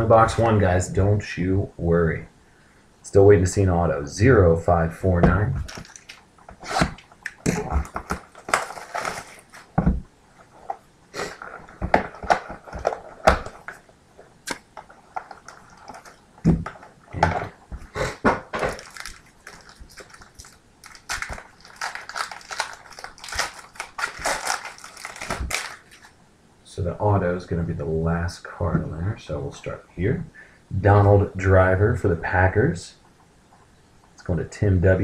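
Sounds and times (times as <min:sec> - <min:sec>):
foil wrapper crinkling: 0:05.6 - 0:06.2, 0:06.9 - 0:09.8, 0:14.5 - 0:16.9, 0:18.6 - 0:26.1.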